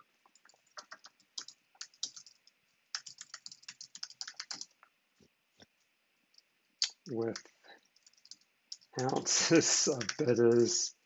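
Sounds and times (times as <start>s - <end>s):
typing on computer keyboard: 0.4s - 4.8s, 7.3s - 10.8s.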